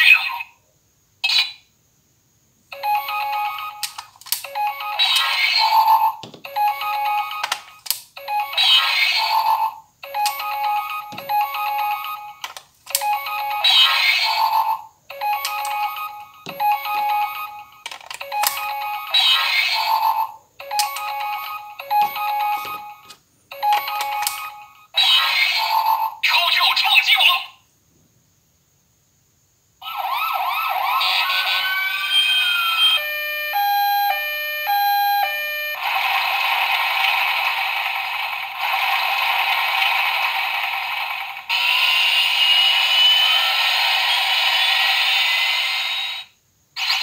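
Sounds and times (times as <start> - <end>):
toy electronic jingles: 2.8 - 26.2
plastic clicks: 3.8 - 4.5, 7.4 - 8.1, 12.4 - 13.1.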